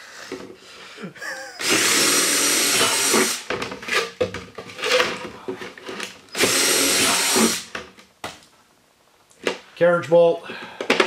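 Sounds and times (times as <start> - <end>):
cordless drill boring plastic: 1.6 - 3.5, 6.3 - 7.7.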